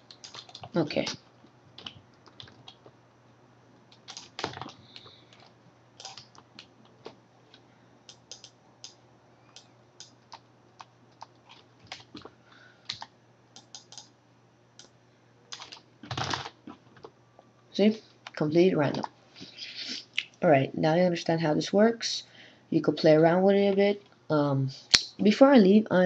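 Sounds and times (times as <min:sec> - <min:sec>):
keyboard typing: 0:00.0 - 0:02.9, 0:03.9 - 0:07.2, 0:08.1 - 0:12.3, 0:12.9 - 0:14.1, 0:15.5 - 0:17.1
faint low hum: 0:00.0 - 0:26.0.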